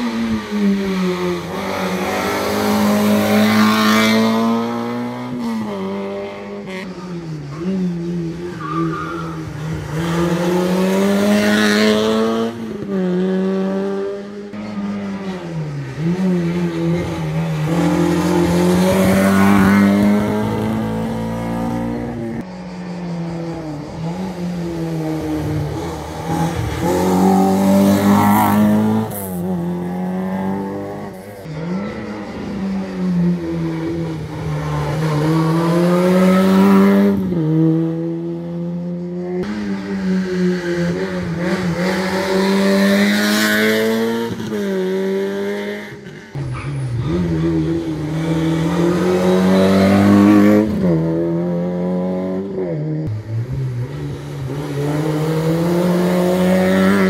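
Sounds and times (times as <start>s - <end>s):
car engine revving: 0.0s - 22.9s, 23.6s - 57.0s.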